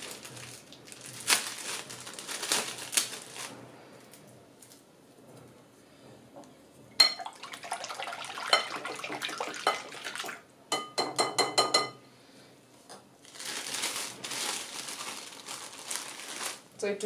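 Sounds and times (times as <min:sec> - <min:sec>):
rustling: 0:00.0 - 0:04.8, 0:13.2 - 0:16.8
whisk clinking against glass: 0:07.0 - 0:07.4, 0:08.4 - 0:09.0, 0:10.7 - 0:12.0.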